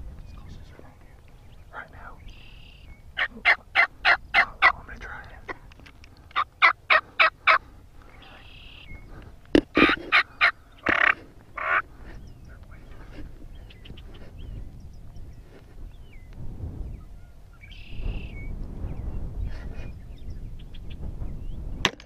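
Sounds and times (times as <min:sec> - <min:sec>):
turkey yelping: 0:06.4 - 0:07.6, 0:09.8 - 0:11.8.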